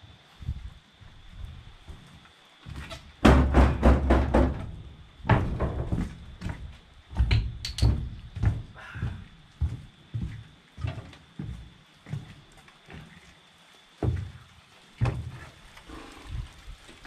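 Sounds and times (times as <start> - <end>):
footsteps on sheet metal: 0.4 - 13.2.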